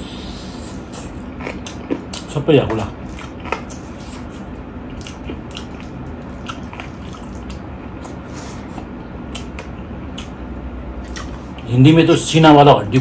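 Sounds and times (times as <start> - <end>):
chewing and lip smacks: 0.9 - 10.4, 11.0 - 11.7.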